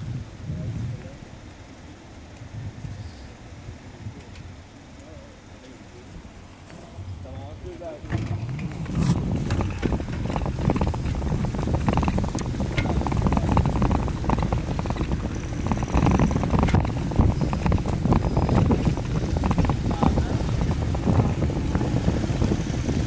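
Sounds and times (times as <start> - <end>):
wind buffeting microphone: 0.0 - 4.9, 6.0 - 23.0
bicycle rattling over road: 0.0 - 23.0.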